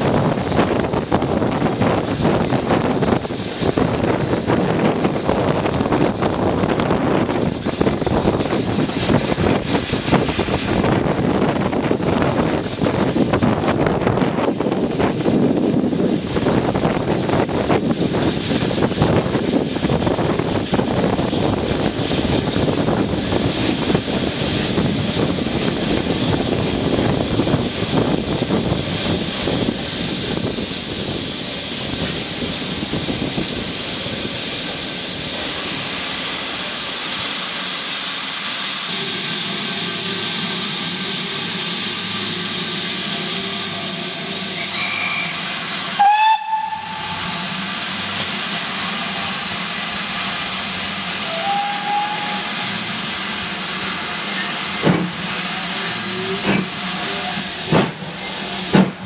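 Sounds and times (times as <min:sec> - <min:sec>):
steam hissing: 0:00.0 - 0:59.0
train wheels rumbling: 0:00.0 - 0:59.0
short rising squeal: 0:44.4 - 0:45.6.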